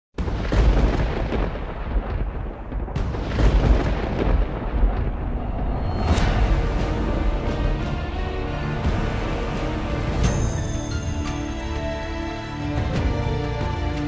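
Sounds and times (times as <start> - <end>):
deep rumbling booms: 0.2 - 10.5
sharp cracking hits: 0.2 - 10.6
intro theme music: 5.1 - 14.0.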